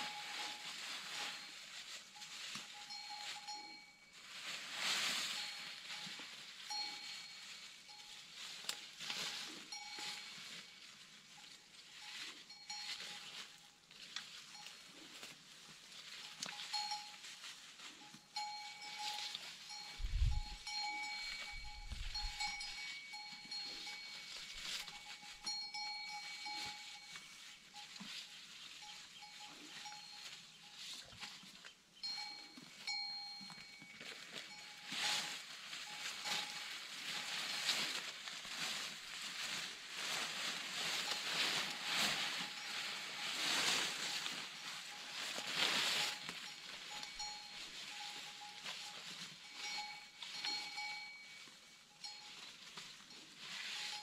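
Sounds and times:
metal bell clanking: 18.3s - 28.0s.

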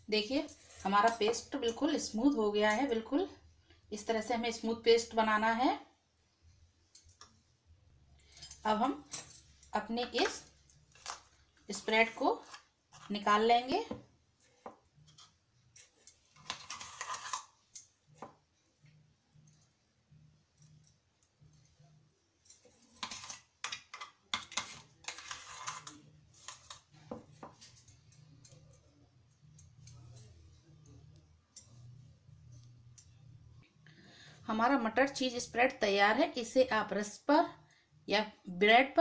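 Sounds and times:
metal spoon scraping steel jar: 15.0s - 17.9s, 22.6s - 26.9s.

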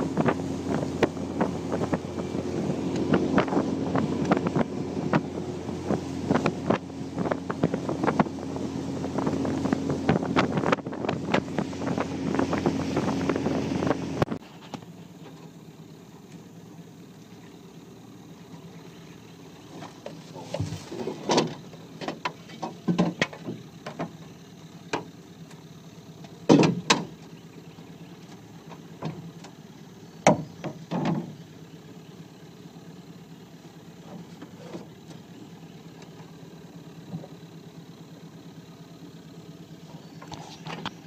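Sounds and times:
knocks and clunks on boat: 0.0s - 15.5s, 19.8s - 25.2s, 26.2s - 27.4s, 28.2s - 29.6s, 30.2s - 31.5s
steady low hum: 0.0s - 41.0s.

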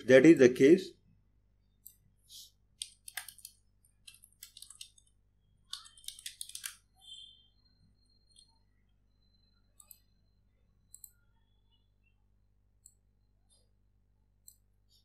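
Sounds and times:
faint keyboard typing: 2.7s - 6.9s, 8.2s - 8.6s, 9.7s - 11.6s.

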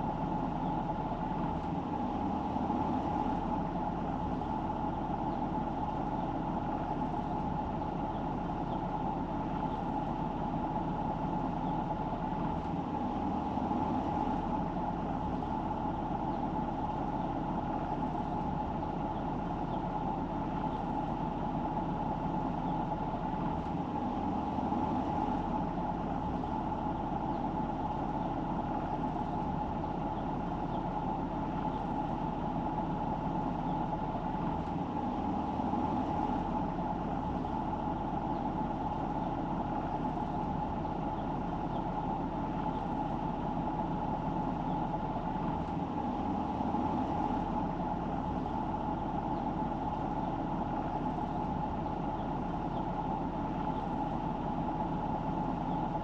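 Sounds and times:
car engine driving: 0.0s - 56.0s.

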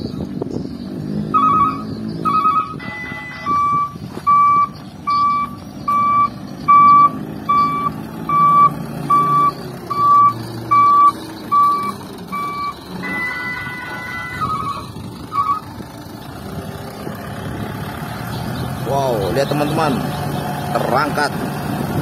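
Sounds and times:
diesel engine running: 0.0s - 22.0s
reversing alarm beeping: 1.3s - 15.6s.

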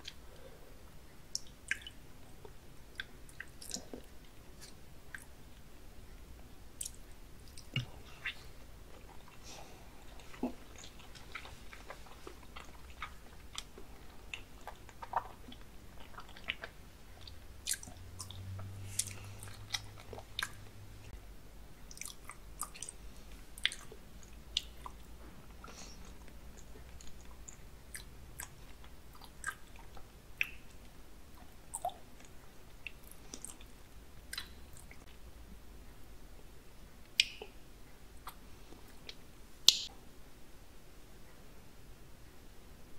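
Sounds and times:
person chewing wet mouth sounds: 1.3s - 5.7s, 6.7s - 20.9s, 21.9s - 35.1s.

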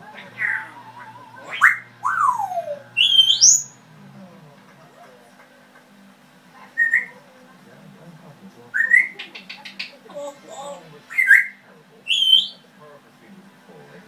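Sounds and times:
parrots whistling: 0.0s - 3.8s, 6.7s - 7.2s, 8.7s - 12.7s.

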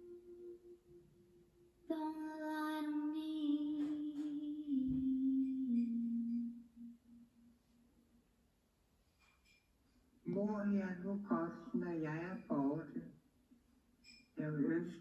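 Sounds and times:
woman singing long notes: 0.0s - 7.5s.

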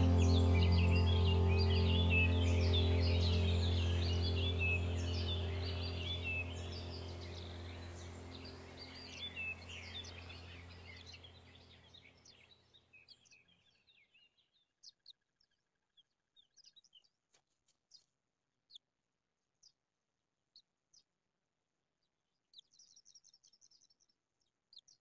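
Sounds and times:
music: 0.0s - 8.6s
small birds chirping: 0.0s - 18.9s, 22.0s - 25.0s.

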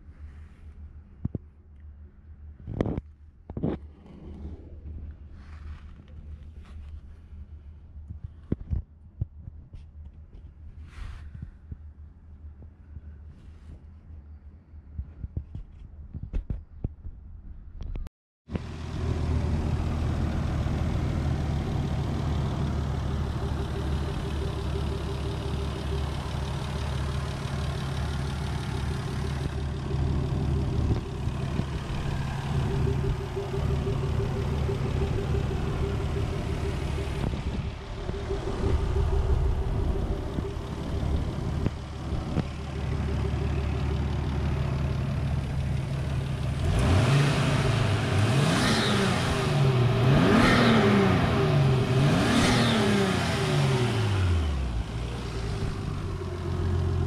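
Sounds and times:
car engine idling: 18.6s - 48.5s, 49.1s - 57.0s.

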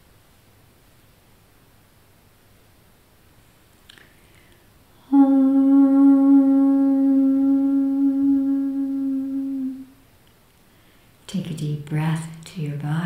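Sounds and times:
woman humming a low note: 5.0s - 10.0s.

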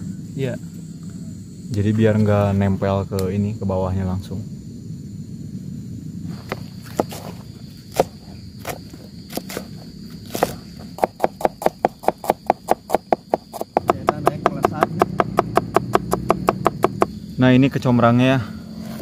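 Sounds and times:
knife chopping on plastic board: 7.9s - 9.7s, 10.3s - 17.1s.

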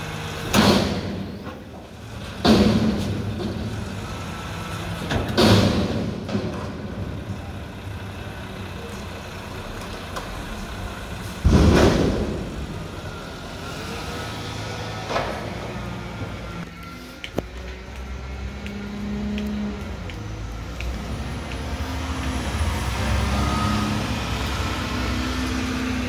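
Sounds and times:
garbage truck engine: 0.0s - 26.0s
loud metal bangs from dumpster: 0.5s - 1.7s, 2.3s - 4.0s, 5.0s - 7.4s, 11.4s - 13.1s.

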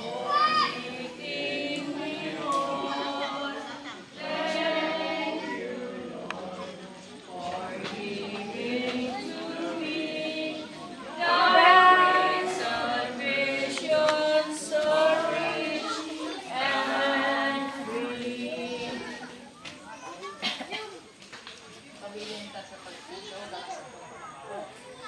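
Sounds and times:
choir singing: 0.0s - 19.6s.

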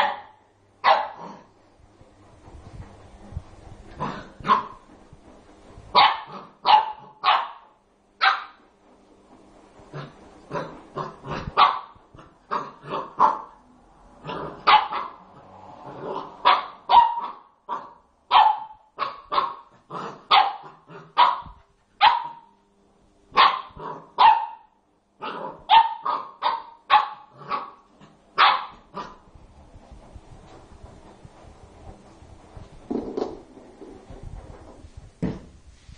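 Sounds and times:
puppy barking: 0.0s - 1.4s, 4.0s - 4.8s, 5.9s - 8.6s, 10.5s - 13.6s, 14.3s - 15.2s, 16.1s - 22.6s, 23.3s - 27.8s, 28.4s - 29.2s.

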